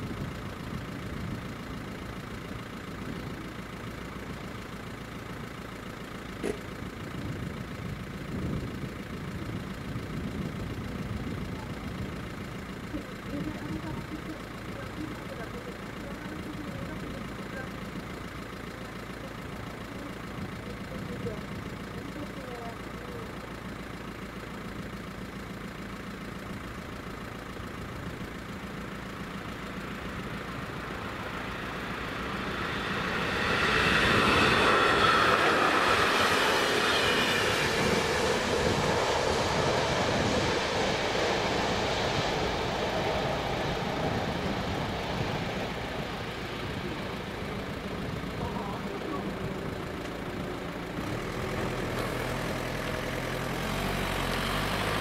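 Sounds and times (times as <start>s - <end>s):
train passing over crossing: 28.8s - 51.0s.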